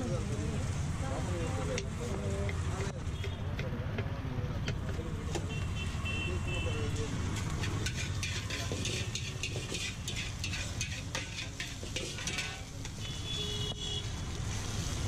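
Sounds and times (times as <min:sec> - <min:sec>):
food sizzling: 0:00.0 - 0:03.2, 0:06.9 - 0:15.0
metal spatula scraping a wok: 0:07.3 - 0:13.4.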